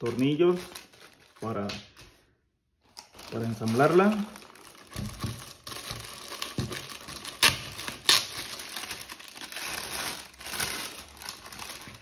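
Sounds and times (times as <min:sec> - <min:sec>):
plastic bag crinkling and rustling: 0:00.0 - 0:12.0
sharp plastic crackles: 0:02.8 - 0:12.0.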